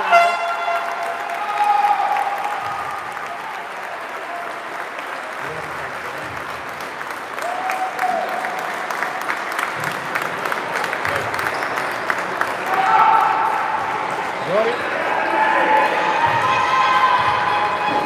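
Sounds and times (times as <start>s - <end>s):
spectators clapping: 0.0s - 18.0s.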